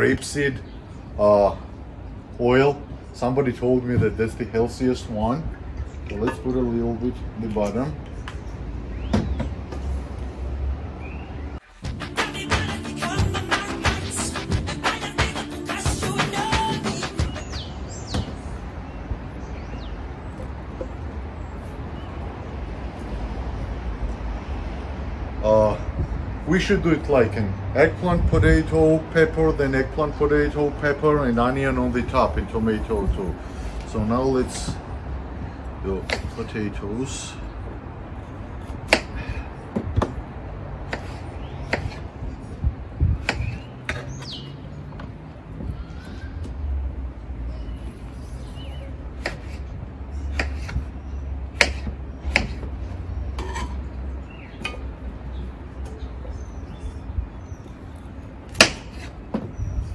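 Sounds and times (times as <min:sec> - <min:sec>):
distant traffic rumble: 0:00.0 - 0:12.4, 0:16.4 - 0:59.9
knife chopping on cutting board: 0:49.2 - 0:49.6, 0:51.6 - 0:52.7.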